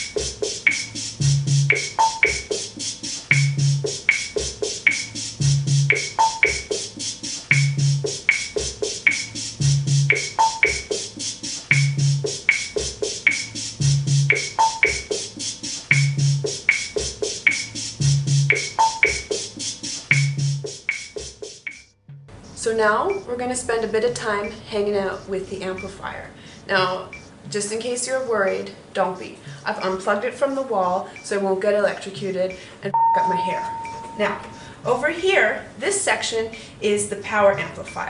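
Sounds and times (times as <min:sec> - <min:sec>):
drum machine rhythm: 0:00.0 - 0:23.3.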